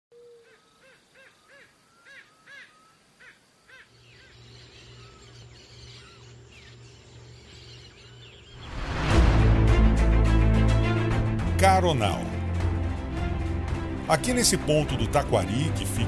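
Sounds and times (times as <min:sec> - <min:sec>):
small birds chirping: 0:00.1 - 0:09.0.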